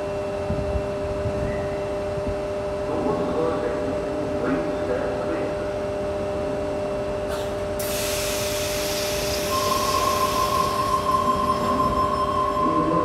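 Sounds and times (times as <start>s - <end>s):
air hissing: 7.3s - 11.3s
train motor whine: 7.3s - 13.0s.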